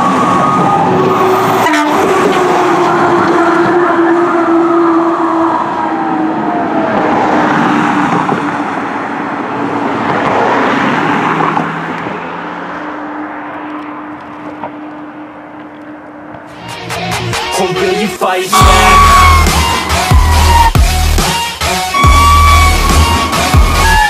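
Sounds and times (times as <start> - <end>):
siren sliding down in pitch: 0.0 - 8.6, 18.5 - 24.0
fire engine driving off: 0.0 - 9.8, 18.5 - 24.0
traffic noise: 0.0 - 24.0
steady tone: 18.5 - 24.0.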